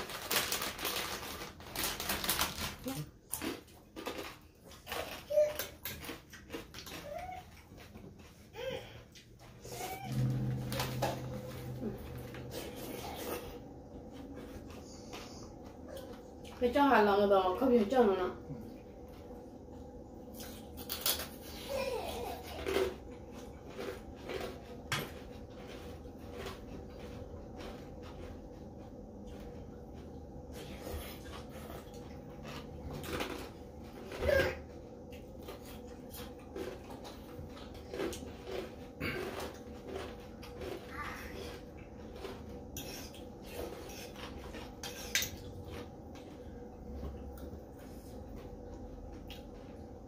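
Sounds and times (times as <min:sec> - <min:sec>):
faint steady hum: 0:00.0 - 0:50.0
mouth chewing and smacking: 0:03.2 - 0:08.5, 0:22.6 - 0:33.7, 0:35.0 - 0:50.0
cutlery scraping ceramic bowl: 0:42.8 - 0:45.4.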